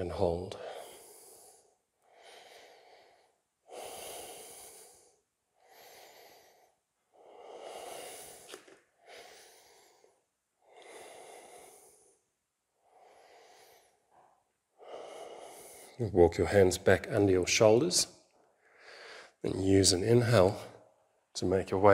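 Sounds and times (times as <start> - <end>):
slow deep breathing: 0.5 - 16.0, 18.4 - 19.4.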